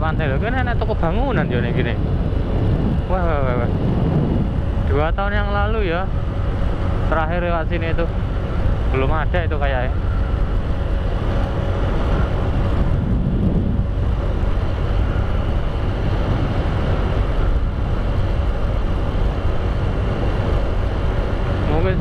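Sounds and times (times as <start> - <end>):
road noise: 0.0 - 22.0
vehicle engine: 0.0 - 22.0
wind: 0.0 - 22.0.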